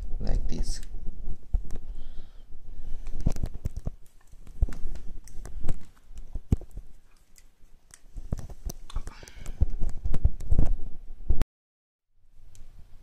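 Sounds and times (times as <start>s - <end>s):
phone and cable handling noise: 3.0s - 10.6s.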